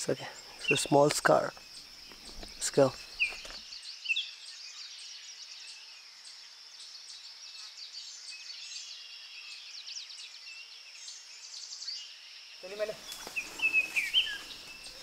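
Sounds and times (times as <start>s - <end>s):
bird chirps and calls: 0.0s - 5.9s, 6.9s - 15.0s
high insect buzz: 11.3s - 15.0s.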